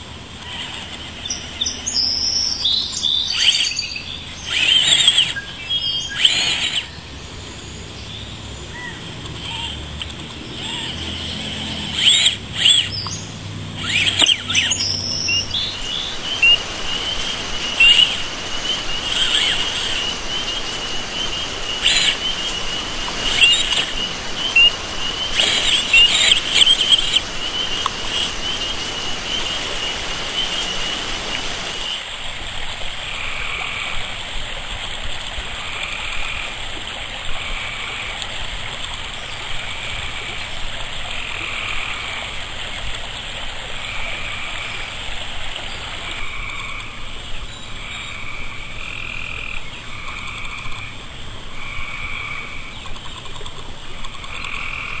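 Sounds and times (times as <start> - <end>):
electric motor whining: 0.2 - 7.9, 8.8 - 31.8
frog croaking: 2.6 - 31.0, 32.9 - 55.0.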